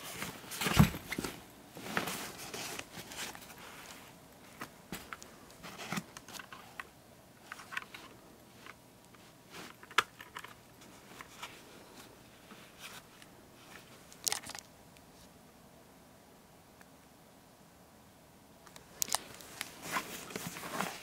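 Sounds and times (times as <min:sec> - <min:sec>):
hands rustling and clicking: 0:12.6 - 0:15.1, 0:18.7 - 0:21.0.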